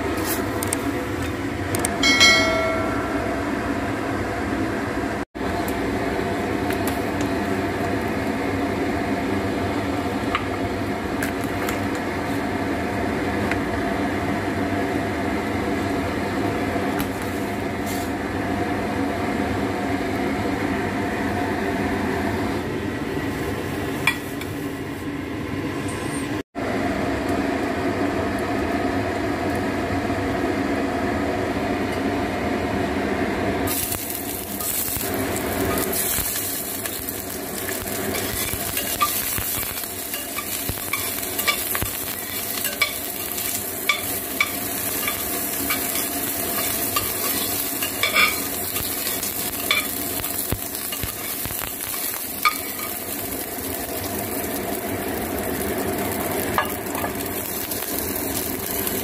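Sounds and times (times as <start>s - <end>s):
steady hum: 0.0s - 11.3s.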